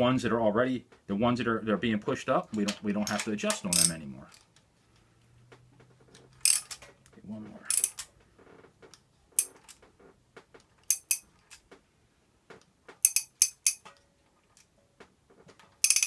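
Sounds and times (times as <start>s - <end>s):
socket ratchet clicking: 3.5s - 4.0s, 6.4s - 6.8s, 7.7s - 8.1s, 10.8s - 11.3s, 13.0s - 13.9s.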